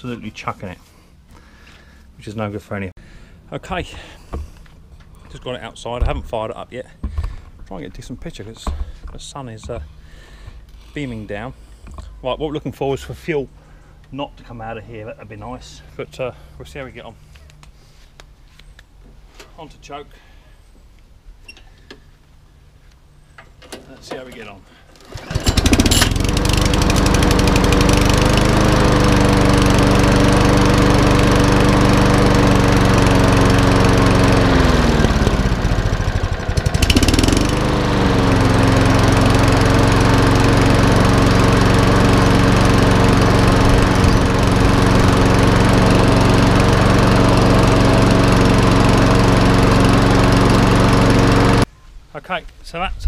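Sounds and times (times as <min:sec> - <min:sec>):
lawnmower engine running: 0:24.9 - 0:51.7.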